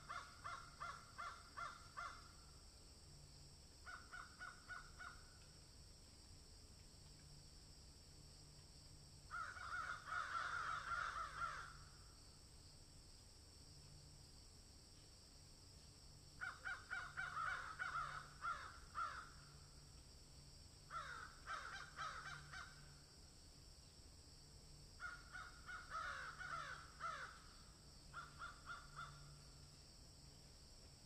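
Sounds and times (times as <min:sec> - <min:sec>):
crows cawing: 0:00.0 - 0:02.4, 0:03.8 - 0:05.3, 0:09.3 - 0:12.0, 0:16.4 - 0:19.6, 0:20.9 - 0:23.0, 0:25.0 - 0:29.4.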